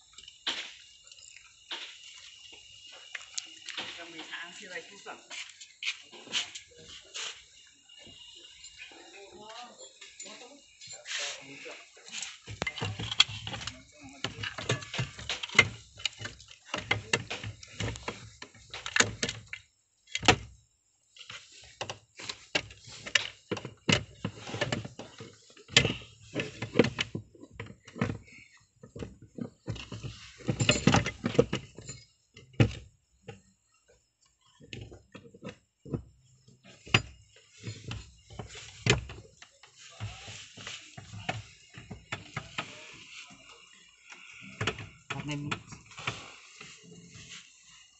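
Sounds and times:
clicks and knocks of parts: 12.1s - 20.5s, 21.2s - 33.4s
metallic clinks of wrenches: 30.4s - 32.2s.

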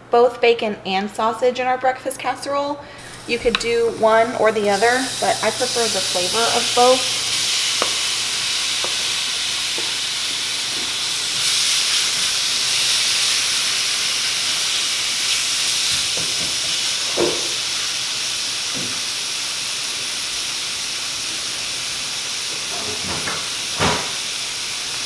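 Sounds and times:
bacon sizzling in a skillet: 3.0s - 25.0s
wooden spoon tapping: 3.5s - 3.7s.

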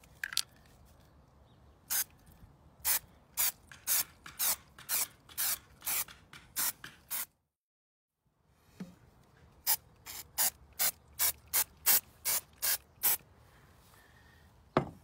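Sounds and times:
spray paint can hissing: 2.8s - 7.3s, 9.6s - 13.2s.

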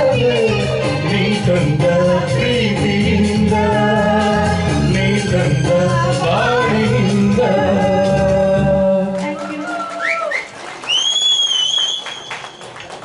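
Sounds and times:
karaoke backing track: 0.0s - 10.2s
man and woman singing duet: 0.0s - 10.3s
long high whistle: 10.0s - 12.8s.

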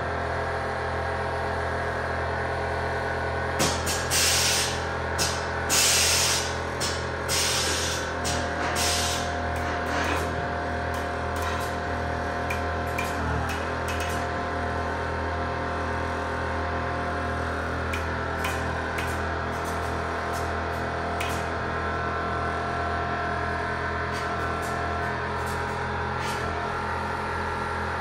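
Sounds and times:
air suspension hissing bursts: 8.8s - 9.2s.

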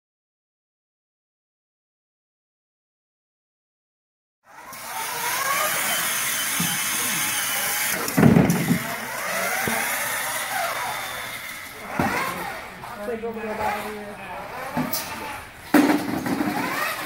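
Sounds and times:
robot motors whining: 4.5s - 17.0s.

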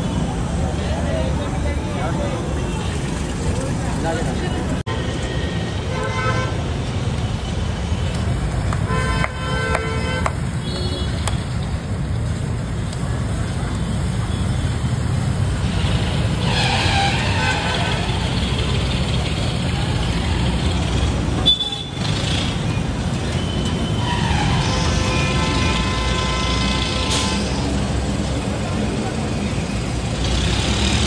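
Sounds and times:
traffic rumble: 0.0s - 31.0s.

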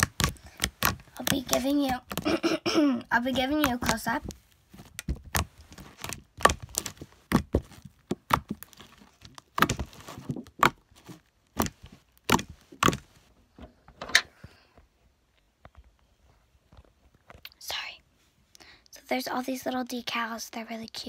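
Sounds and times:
slime squished by hand: 0.0s - 2.3s.

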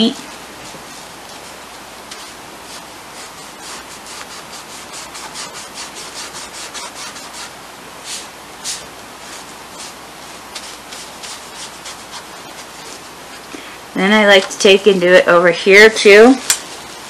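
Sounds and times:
paintbrush strokes on wood: 0.1s - 13.5s.

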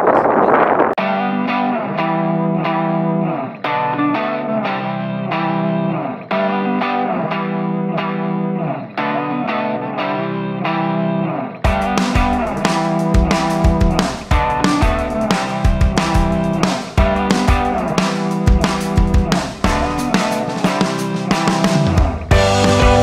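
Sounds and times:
guitar music: 1.0s - 23.0s
drums: 11.6s - 23.0s.

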